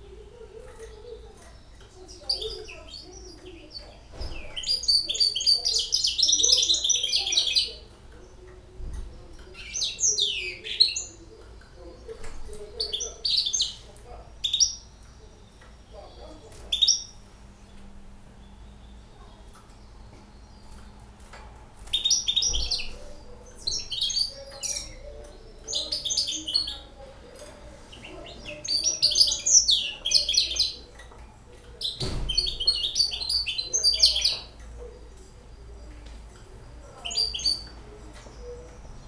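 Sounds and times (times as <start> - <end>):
finch twittering: 0.8 - 8.4, 12.7 - 17.8, 21.8 - 31.2, 31.8 - 35.7, 36.9 - 39.0.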